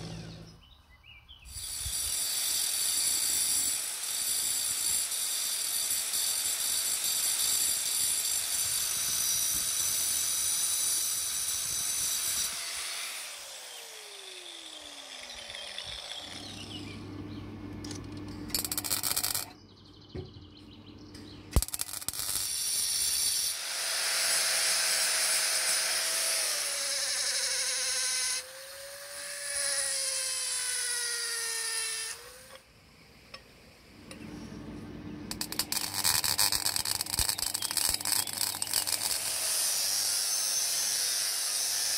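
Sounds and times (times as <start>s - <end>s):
angle grinder whine: 0.0s - 0.6s, 12.2s - 19.6s, 21.6s - 32.6s, 34.0s - 41.9s
power tool wavering pitch: 0.0s - 0.6s, 12.4s - 19.6s, 21.6s - 32.6s, 34.0s - 41.9s
arc welding crackle: 17.8s - 19.5s, 21.5s - 28.2s, 35.3s - 40.4s.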